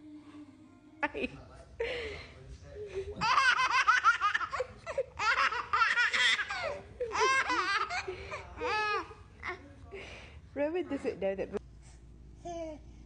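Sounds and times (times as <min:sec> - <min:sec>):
baby giggling: 0:03.2 - 0:09.0.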